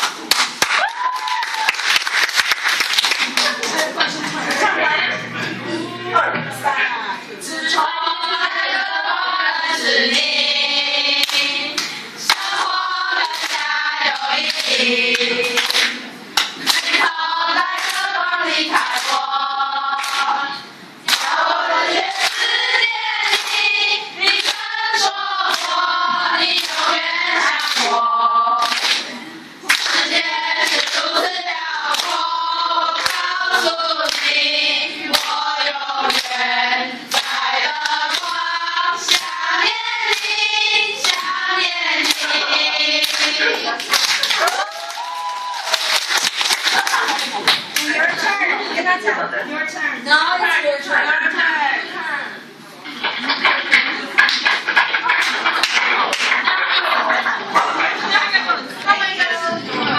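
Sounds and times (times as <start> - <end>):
hand claps: 0.0 - 3.8, 11.2 - 12.6, 13.2 - 17.1, 17.8 - 18.1, 18.7 - 19.2, 20.0 - 20.3, 21.1 - 21.4, 22.2 - 22.5, 23.3 - 23.6, 24.3 - 24.7, 25.5 - 25.8, 26.6 - 26.8, 27.5 - 27.9, 28.6 - 29.1, 29.7 - 30.0, 30.6 - 31.0, 31.9 - 32.2, 33.0 - 33.3, 34.0 - 34.3, 36.0 - 36.4, 37.1 - 38.4, 39.1 - 39.4, 41.0 - 41.3, 42.0 - 42.4, 43.0 - 47.9, 53.0 - 57.8
girls singing in chorus: 7.4 - 47.5.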